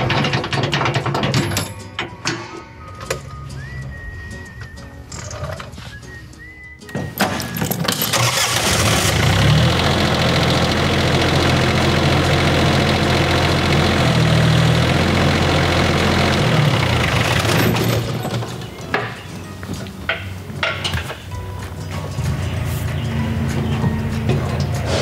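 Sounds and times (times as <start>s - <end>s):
tractor diesel engine running: 7.2s - 25.0s.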